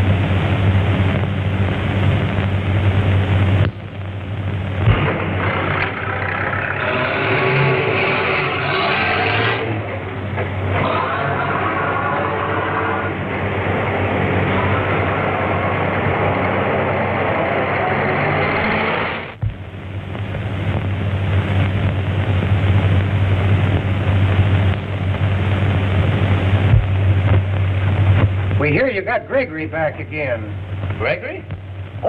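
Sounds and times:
film soundtrack hiss and hum: 0.0 - 32.0.

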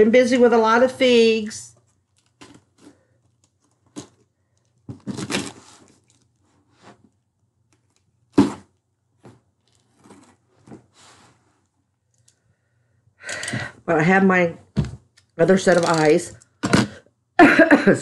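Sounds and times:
packing tape tearing: 2.1 - 6.4, 15.6 - 16.9
cardboard scraping and rustling: 2.2 - 7.2, 8.3 - 11.5.

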